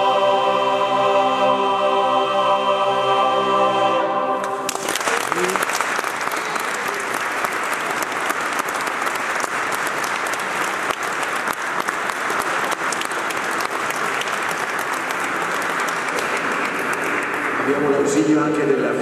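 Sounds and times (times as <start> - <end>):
audience applauding: 4.4 - 19.0.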